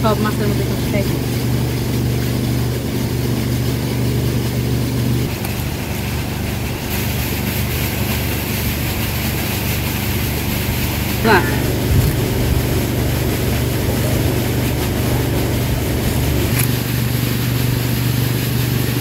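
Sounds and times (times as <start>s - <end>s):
engine running: 0.0s - 19.0s
hiss: 5.3s - 19.0s.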